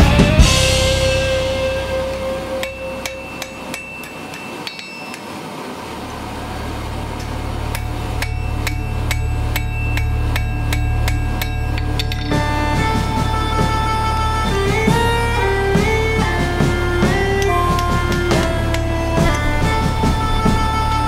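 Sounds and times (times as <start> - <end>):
low hum: 0.0 - 21.0
hammer striking steel on anvil: 2.1 - 5.3, 8.2 - 12.5.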